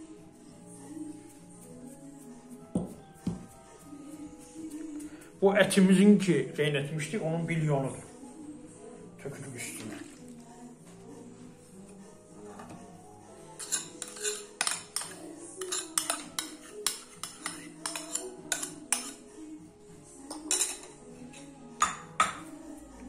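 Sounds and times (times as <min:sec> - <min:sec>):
metal spoon clinking china bowl: 0:13.6 - 0:19.2, 0:20.3 - 0:22.4.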